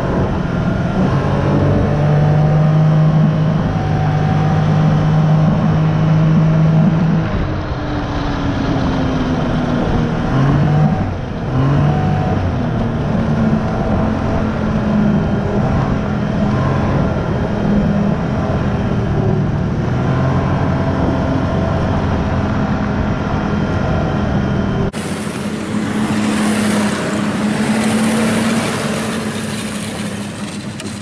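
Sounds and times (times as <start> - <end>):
snowmobile engine droning: 0.0 - 31.0.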